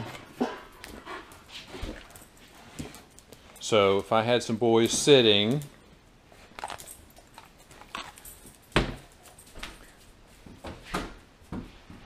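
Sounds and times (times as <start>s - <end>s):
dog claws clicking on hard floor: 6.5s - 10.0s.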